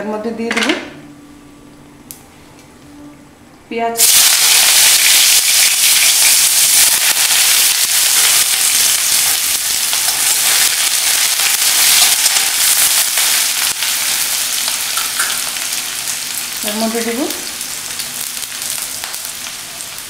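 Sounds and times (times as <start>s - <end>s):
onions sizzling in hot oil: 4.0s - 20.0s.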